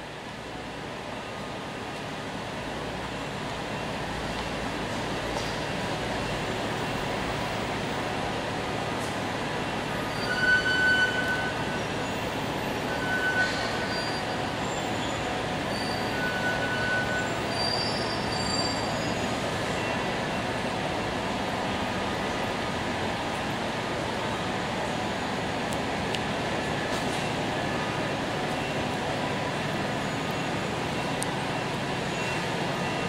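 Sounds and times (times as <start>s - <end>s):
city street traffic: 0.0s - 33.0s
high-pitched squeals: 10.0s - 19.5s.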